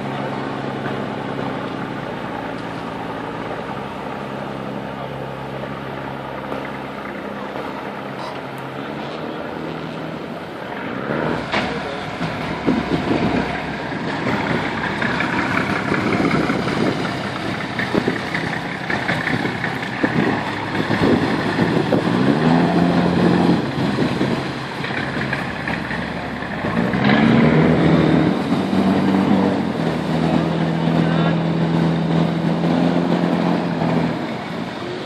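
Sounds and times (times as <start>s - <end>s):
engines running: 0.0s - 35.0s.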